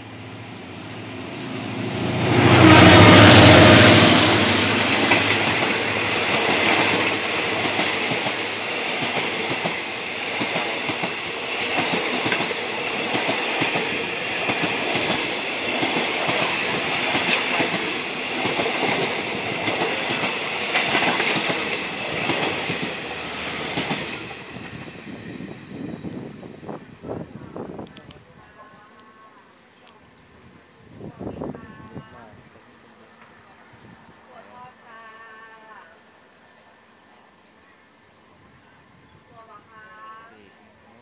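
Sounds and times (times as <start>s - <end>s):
train coaches rushing past: 0.0s - 27.8s.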